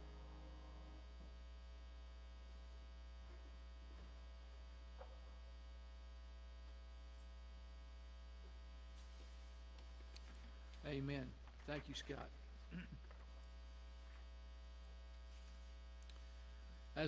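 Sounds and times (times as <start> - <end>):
piano chord: 0.0 - 1.4
electrical mains hum: 0.0 - 17.0
faint clicks: 16.0 - 16.3.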